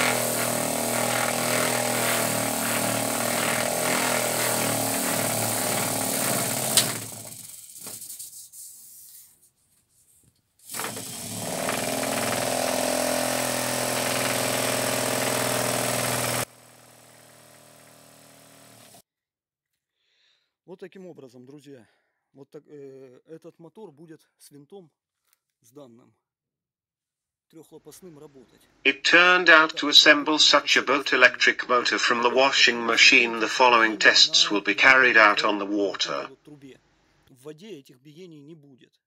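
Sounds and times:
motor spinning propeller: 0.0s - 8.0s, 10.7s - 19.0s.

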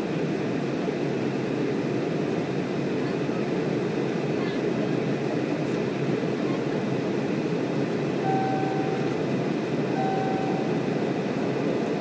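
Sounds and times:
jet cabin engine drone: 0.0s - 12.0s
short cabin tones: 8.2s - 9.2s, 10.0s - 10.9s.

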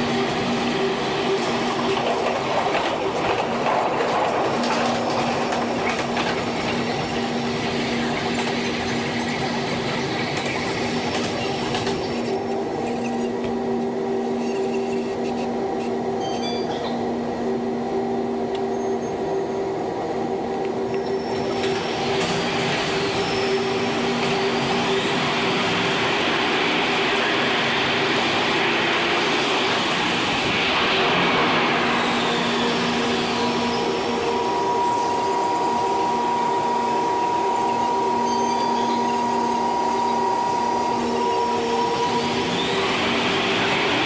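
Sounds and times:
subway train wheels rumbling: 0.0s - 44.0s.

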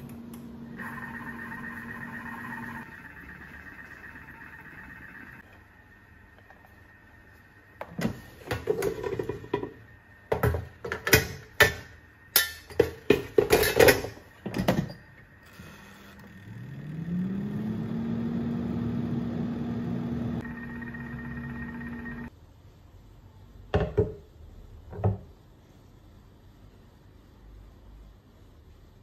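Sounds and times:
air fryer fan motor humming: 0.0s - 10.4s, 15.8s - 22.3s.

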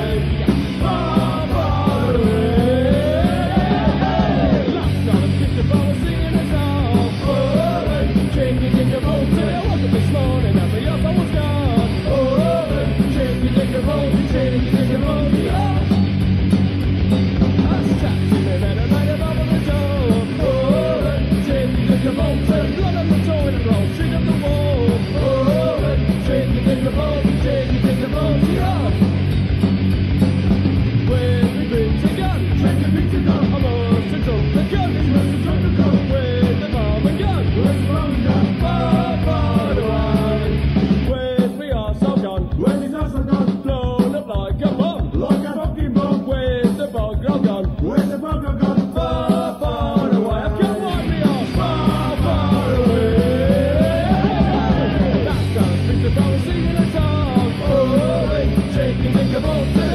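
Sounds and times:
person singing: 0.0s - 16.0s, 17.6s - 29.0s, 31.0s - 59.9s
electric guitar: 0.0s - 59.9s
punk rock band playing: 0.0s - 59.9s.

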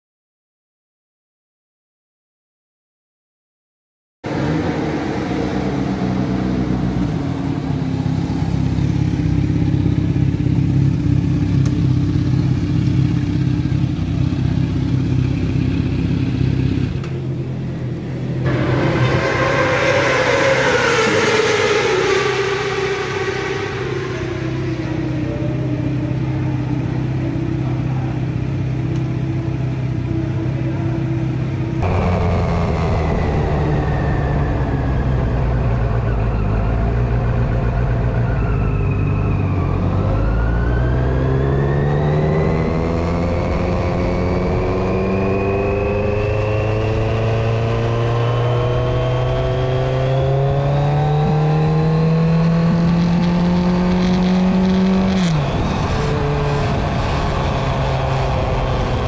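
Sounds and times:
motorcycle engine idling: 7.8s - 18.4s.

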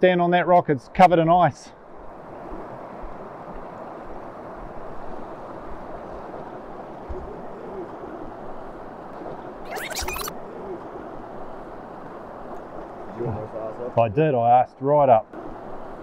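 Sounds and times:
brief high-pitched sound: 9.7s - 10.3s.

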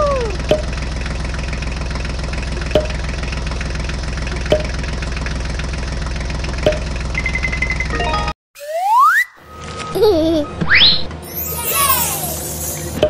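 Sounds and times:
tractor engine idling: 0.0s - 8.2s.

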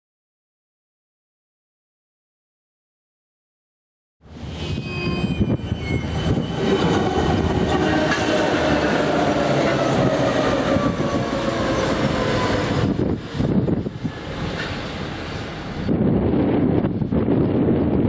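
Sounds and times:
diesel locomotive engine drone: 4.2s - 18.0s.

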